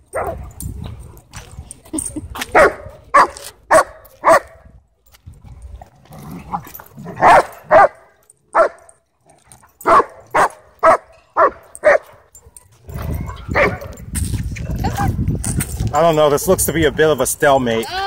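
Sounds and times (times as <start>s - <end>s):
dog barking: 0.1s - 0.4s, 2.5s - 4.6s, 7.2s - 8.9s, 9.8s - 12.2s, 13.3s - 14.0s.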